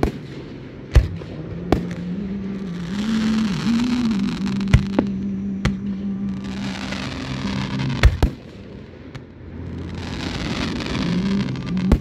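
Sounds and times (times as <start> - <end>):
fireworks bangs: 0.0 - 12.0
hissing crackle of fireworks: 0.0 - 12.0
steady low hum: 0.0 - 12.0.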